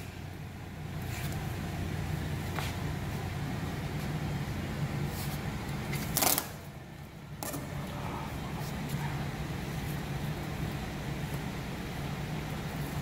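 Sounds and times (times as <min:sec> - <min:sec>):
steady low hum: 0:00.0 - 0:13.0
tape crackling: 0:05.9 - 0:06.7
masking tape ripping: 0:06.0 - 0:06.7.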